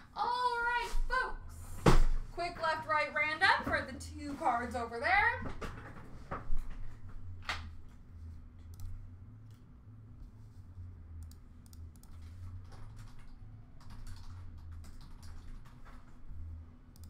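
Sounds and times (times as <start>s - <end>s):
low hum: 0.0s - 17.0s
keyboard and mouse clicks: 8.6s - 9.6s, 11.2s - 16.2s.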